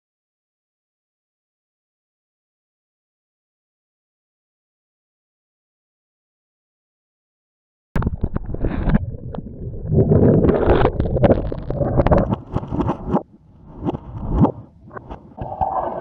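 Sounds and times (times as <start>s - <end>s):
water sloshing and gurgling: 8.0s - 16.0s.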